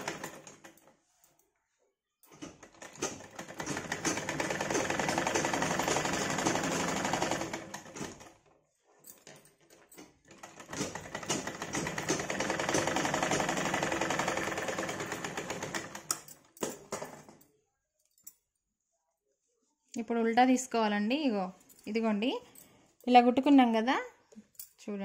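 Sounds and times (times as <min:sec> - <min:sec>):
sewing machine clattering: 0:00.0 - 0:00.8, 0:02.3 - 0:08.4, 0:09.2 - 0:17.4.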